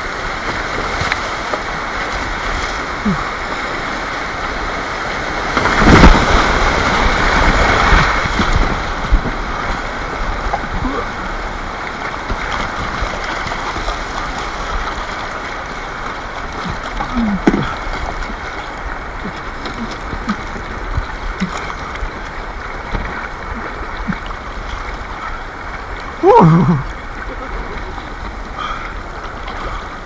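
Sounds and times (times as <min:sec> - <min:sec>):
rushing whitewater: 0:00.0 - 0:30.0
water splashing: 0:00.0 - 0:30.0.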